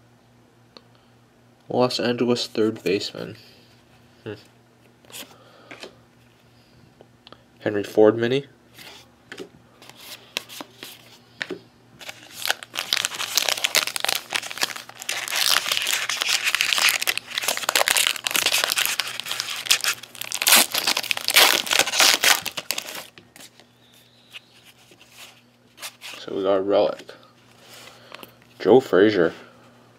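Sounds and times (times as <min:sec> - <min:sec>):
wrapper crinkling and tearing: 0:12.0 - 0:23.5.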